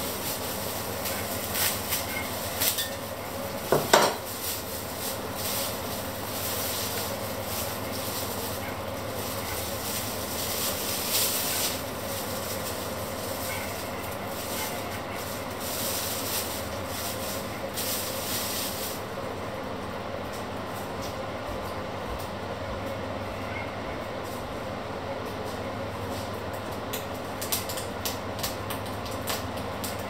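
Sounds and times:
plastic bag rustling: 0.0 - 19.4.

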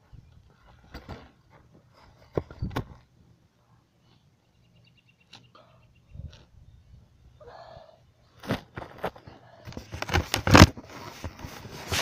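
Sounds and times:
gravel crunching and scraping: 8.4 - 12.0.

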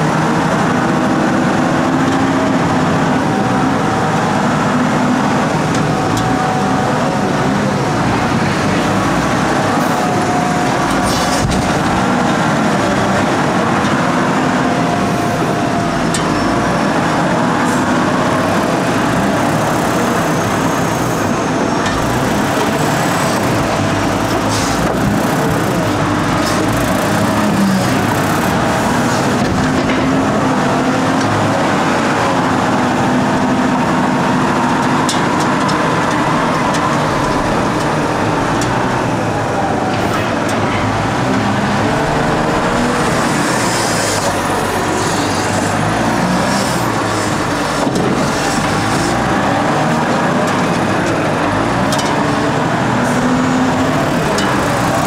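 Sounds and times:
wheel loader diesel engine running: 0.0 - 55.0.

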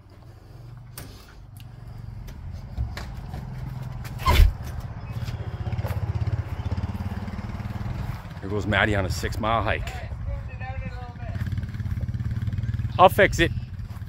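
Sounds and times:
small engine idling: 10.2 - 14.0.

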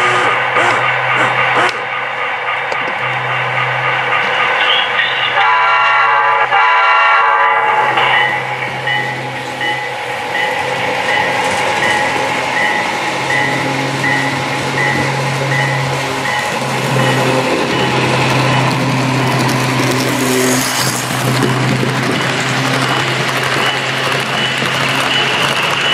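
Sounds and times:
model locomotive running hum: 0.0 - 1.9.

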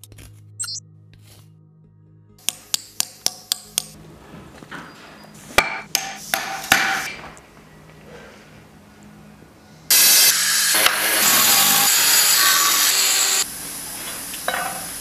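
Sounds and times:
hammer striking chisel on stone: 2.4 - 4.0, 5.6 - 7.2
power tool cutting: 9.9 - 13.5.

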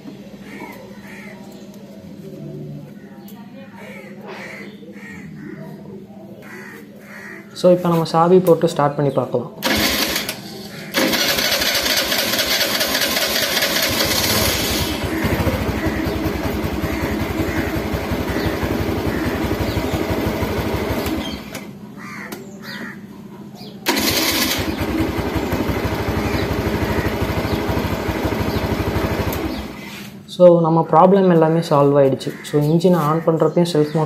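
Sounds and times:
scooter engine running: 9.6 - 21.8, 23.6 - 30.0
scooter starter motor cranking: 9.6 - 21.8, 23.8 - 29.8.

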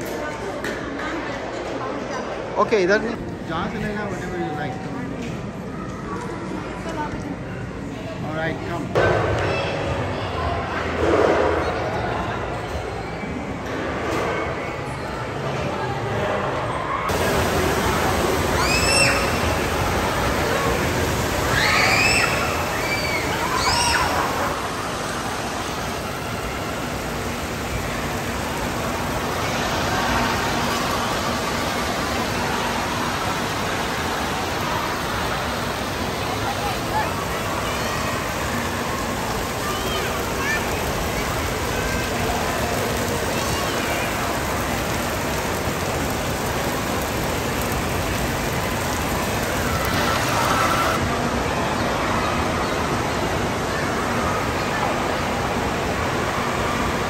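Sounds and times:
fountains spraying: 17.0 - 57.0
water splashing into pool: 17.1 - 51.0.

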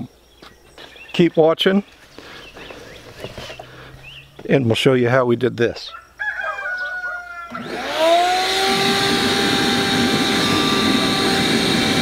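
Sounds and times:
rooster crowing: 5.9 - 8.1
shop vac motor whine: 7.5 - 12.0.

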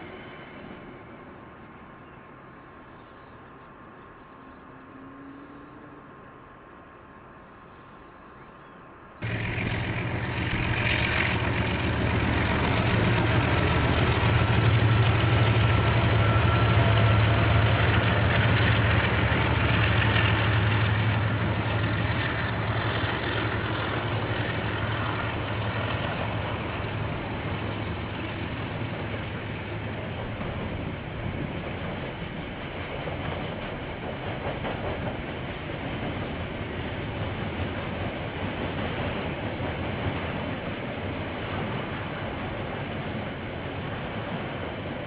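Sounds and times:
diesel locomotive engine drone: 0.0 - 45.0.

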